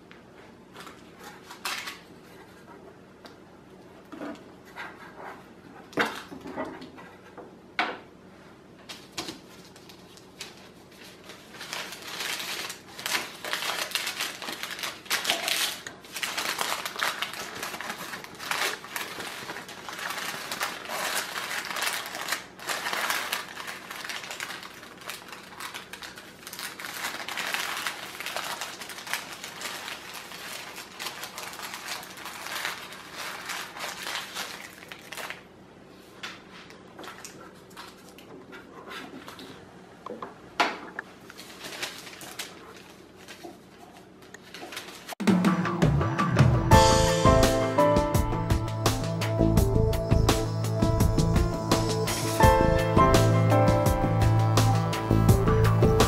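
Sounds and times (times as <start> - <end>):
paper crinkling and rustling: 0.6 - 2.8, 8.8 - 39.6, 41.2 - 45.2.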